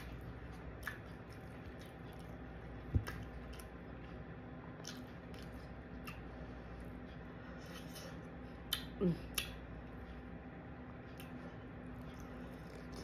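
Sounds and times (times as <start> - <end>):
chewing and mouth clicks: 0.0 - 4.1, 4.7 - 6.4, 7.6 - 9.7, 11.1 - 13.0.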